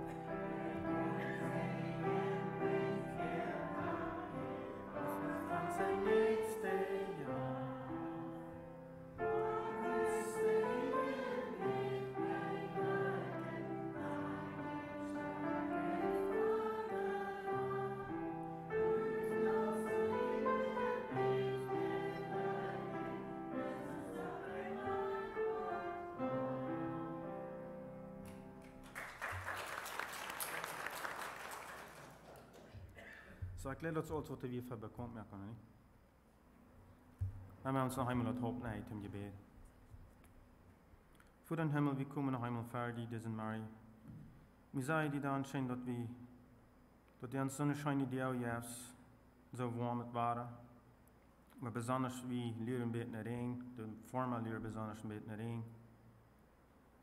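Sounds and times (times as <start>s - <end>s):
voices singing slow song: 0.0s - 27.7s
grand piano accompaniment: 0.0s - 31.2s.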